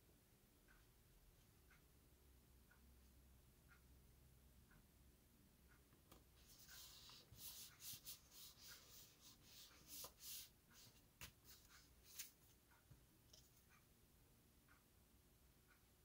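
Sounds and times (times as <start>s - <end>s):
cardstock rustling and rubbing: 6.4s - 12.4s.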